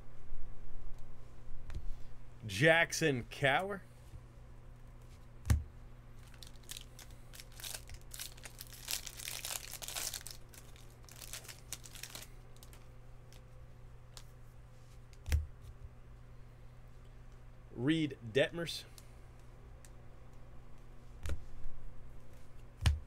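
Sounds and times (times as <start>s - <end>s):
cards rustling: 6.2s - 13.5s.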